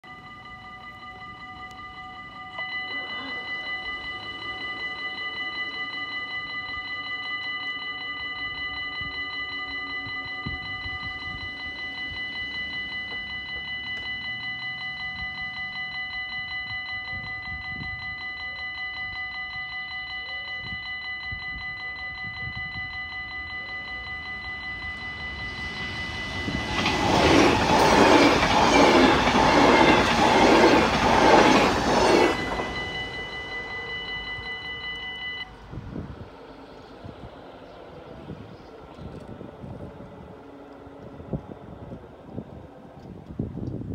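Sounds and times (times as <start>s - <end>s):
level crossing bell ringing: 0.0s - 35.5s
train wheels clattering: 24.9s - 33.7s.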